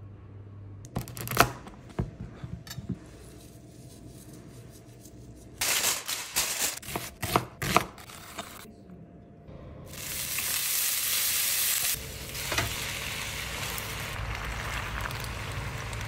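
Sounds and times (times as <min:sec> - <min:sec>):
knife chopping onion: 0:06.8 - 0:08.6.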